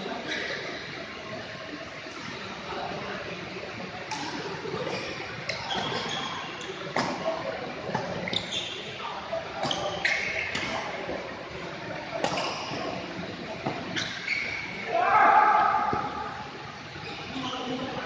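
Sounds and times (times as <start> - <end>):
shoe squeaks: 5.0 - 6.7, 8.2 - 8.9, 9.6 - 10.7, 13.9 - 14.8, 17.0 - 17.8.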